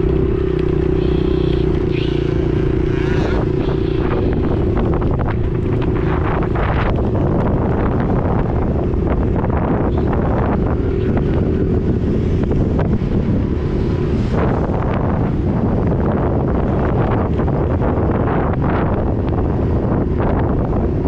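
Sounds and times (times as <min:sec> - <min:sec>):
motorcycle engine running: 0:00.0 - 0:21.0
wind buffeting microphone: 0:00.0 - 0:21.0.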